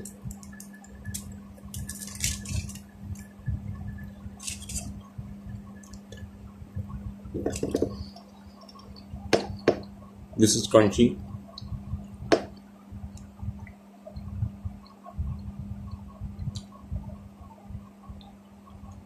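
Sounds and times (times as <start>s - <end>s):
foil wrapper crackling: 0.5s - 2.9s.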